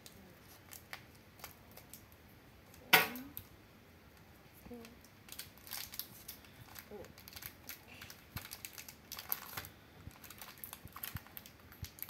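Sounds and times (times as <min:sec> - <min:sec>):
scissors snipping foil wrapper: 0:04.8 - 0:12.0.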